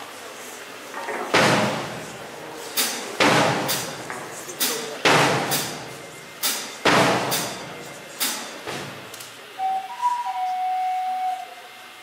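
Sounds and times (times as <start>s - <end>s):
heavy drum kit hits: 1.3s - 2.2s, 2.8s - 9.1s
flute melody: 9.6s - 12.0s.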